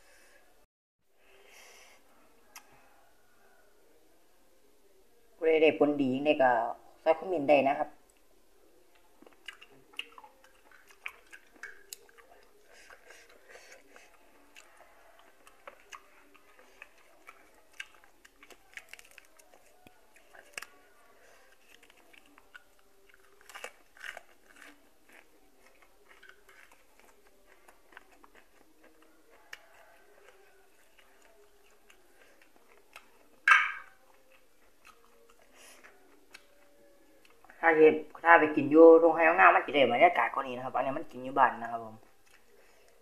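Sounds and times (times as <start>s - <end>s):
small clicks and mouth sounds: 8.9s - 20.8s
person chewing: 8.9s - 37.4s, 42.1s - 43.0s.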